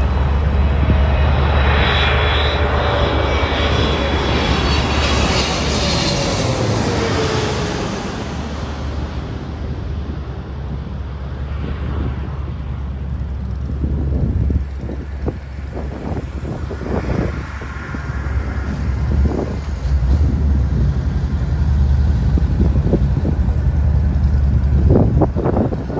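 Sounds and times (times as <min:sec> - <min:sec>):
jet plane passing overhead: 0:00.0 - 0:25.9.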